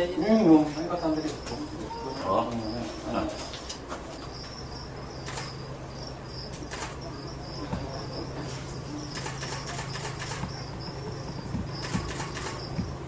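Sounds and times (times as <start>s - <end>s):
low steady hum: 0.0s - 13.0s
sharp clicks: 5.2s - 5.6s, 6.5s - 7.0s, 9.1s - 10.5s, 11.8s - 12.8s.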